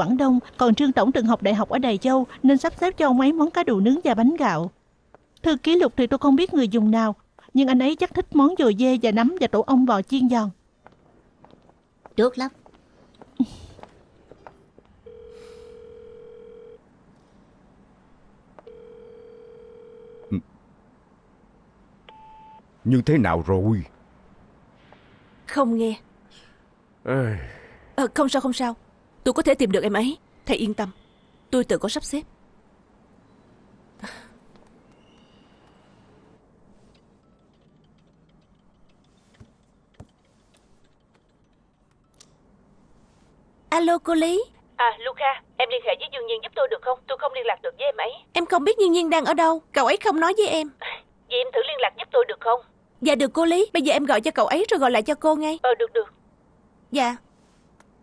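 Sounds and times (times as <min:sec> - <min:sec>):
telephone ringback beeps: 0:15.1 - 0:16.8, 0:18.7 - 0:20.3, 0:22.1 - 0:22.6.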